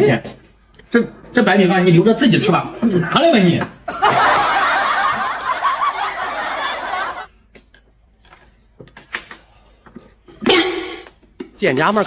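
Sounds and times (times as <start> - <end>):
snickering laugh: 4.0 - 7.3.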